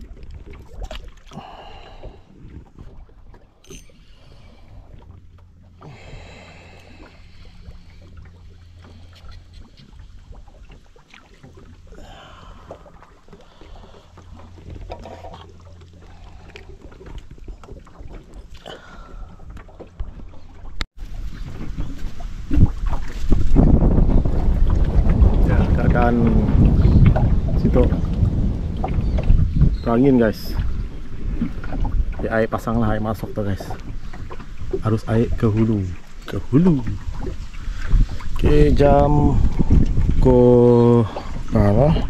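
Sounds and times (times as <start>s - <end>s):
wind buffeting microphone: 0.0s - 3.4s, 21.0s - 42.0s.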